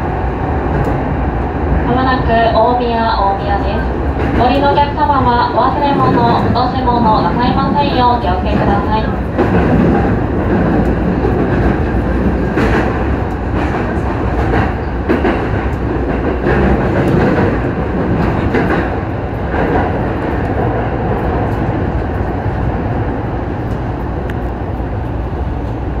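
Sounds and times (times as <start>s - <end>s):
train wheels rumbling on rail: 0.0s - 26.0s
clacks over rail joints: 8.4s - 21.8s.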